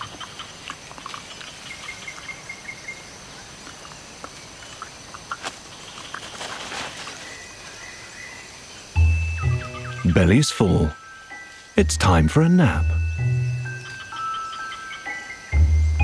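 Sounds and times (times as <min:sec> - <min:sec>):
high insect drone: 0:00.0 - 0:16.0
faint bird chirps: 0:07.0 - 0:11.8.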